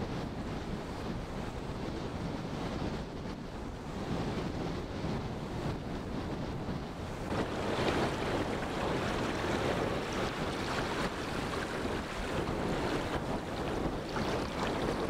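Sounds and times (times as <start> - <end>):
wind buffeting microphone: 0.0 - 15.0
shallow water lapping: 7.0 - 15.0.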